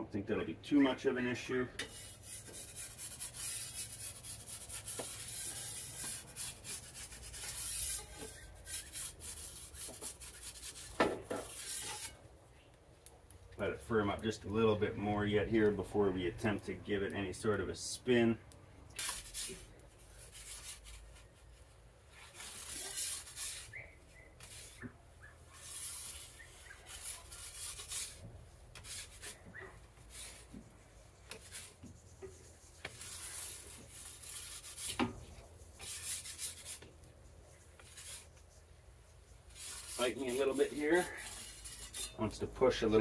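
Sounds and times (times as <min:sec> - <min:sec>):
metal peel scraping on stone: 0:01.8 - 0:12.2, 0:22.2 - 0:24.9, 0:25.5 - 0:30.5, 0:31.3 - 0:35.2, 0:35.8 - 0:36.9, 0:37.8 - 0:38.3, 0:39.5 - 0:42.5.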